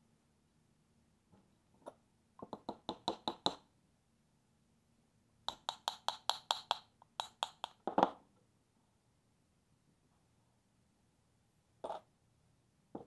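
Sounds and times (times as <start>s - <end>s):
rapid light metallic taps: 5.5s - 7.9s.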